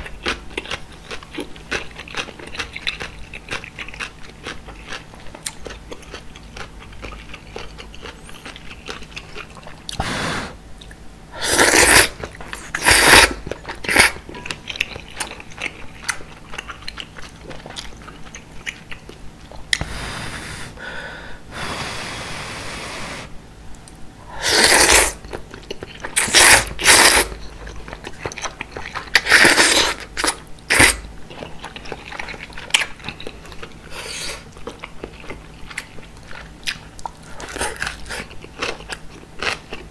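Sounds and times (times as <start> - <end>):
wet chewing: 0.0 - 10.0, 10.8 - 19.8, 24.5 - 39.9
noodle slurping: 24.4 - 25.2, 26.2 - 27.4.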